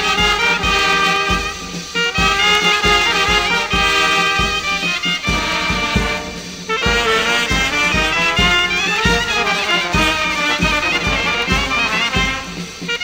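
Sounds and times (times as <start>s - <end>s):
brass folk melody: 0.0s - 13.0s
low drum beat: 0.0s - 13.0s.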